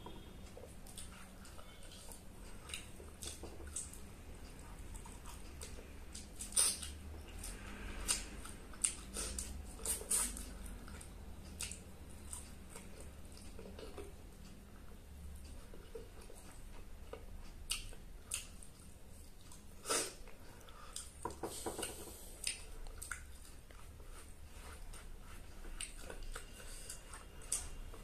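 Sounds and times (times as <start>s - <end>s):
person chewing with mouth open: 0.1s - 28.0s.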